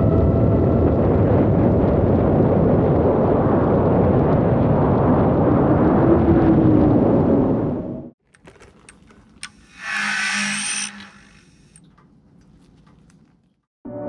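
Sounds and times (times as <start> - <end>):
propeller and wind rush: 0.0 - 8.1
faint motor whine: 9.0 - 13.6.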